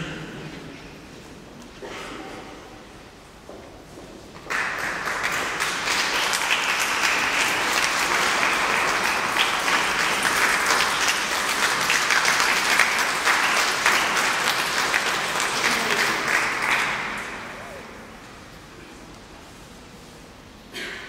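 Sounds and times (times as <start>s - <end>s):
audience applauding: 4.4s - 18.4s.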